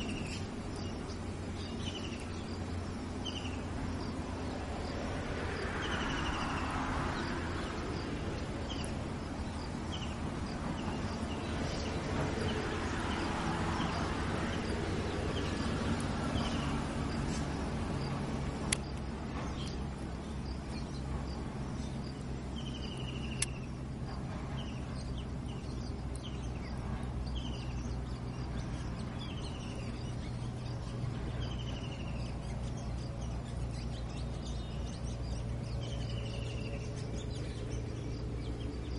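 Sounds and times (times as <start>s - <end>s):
steady low hum: 0.0s - 38.9s
sharp clicks: 18.6s - 19.8s, 23.3s - 23.7s.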